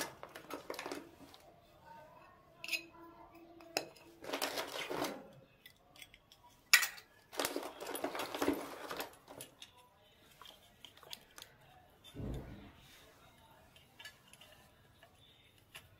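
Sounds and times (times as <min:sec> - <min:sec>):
plastic packaging crinkling: 0:00.0 - 0:01.3, 0:04.2 - 0:05.3, 0:07.3 - 0:09.6
small metal pots clinking: 0:05.9 - 0:09.7.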